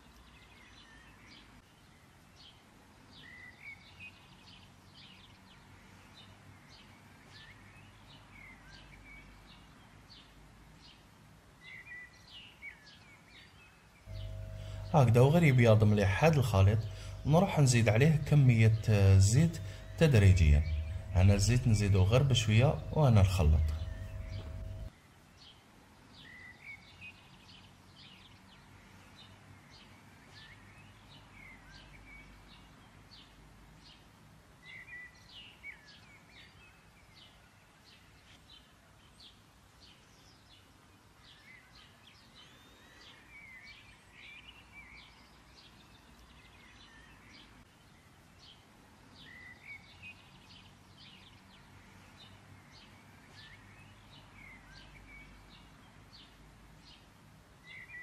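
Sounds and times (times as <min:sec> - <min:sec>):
faint low hum: 0:14.1 - 0:24.9
small birds chirping: 0:34.7 - 0:58.0.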